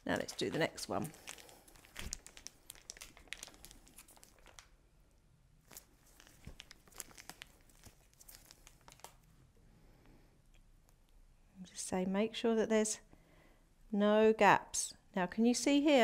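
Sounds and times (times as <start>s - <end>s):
plastic piping bag crinkling: 0.0s - 4.8s, 5.6s - 9.3s.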